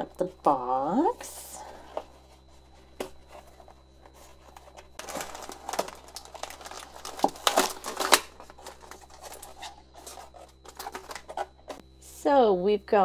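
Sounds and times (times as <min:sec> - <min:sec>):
cardboard box being opened: 0:02.4 - 0:11.8
plastic wrap crinkling: 0:03.0 - 0:11.8.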